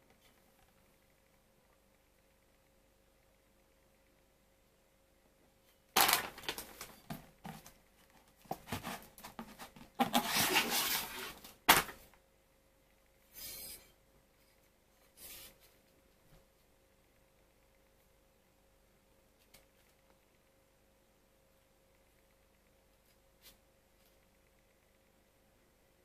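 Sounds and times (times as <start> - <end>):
plastic and cardboard crinkling: 5.9 - 12.1.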